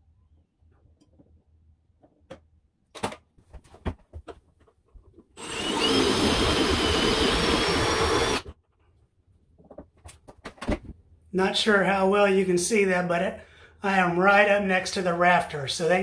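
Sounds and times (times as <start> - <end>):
power tool motor running: 5.4 - 8.5.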